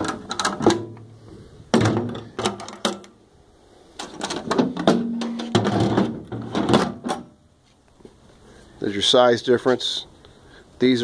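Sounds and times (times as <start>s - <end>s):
metal cans clanking and scraping: 0.0s - 1.1s, 4.0s - 7.3s.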